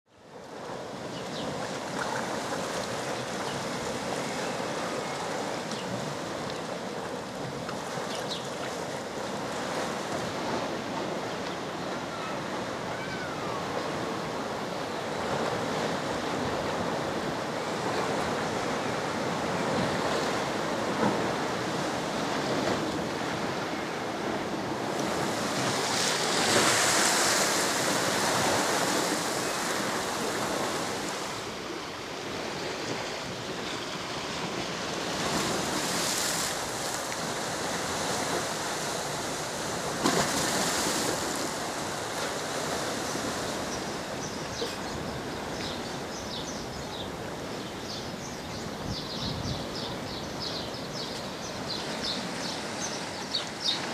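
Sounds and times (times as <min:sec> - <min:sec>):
waves washing over pebbles: 0:15.3 - 0:44.1.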